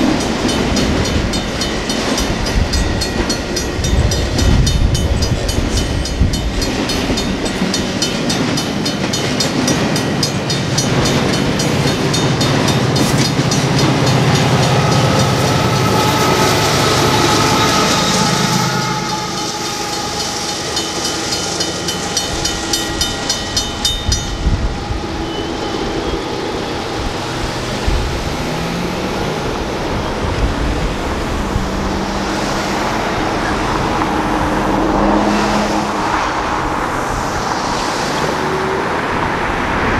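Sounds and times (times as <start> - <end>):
grade crossing bells ringing: 0.0 - 31.0
diesel locomotives: 0.0 - 39.9
freight train passing: 0.0 - 39.9
road traffic passing: 0.0 - 39.9.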